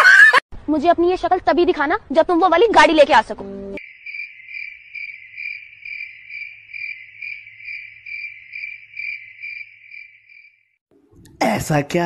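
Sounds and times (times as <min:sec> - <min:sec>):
cricket chirping: 0:03.8 - 0:10.8.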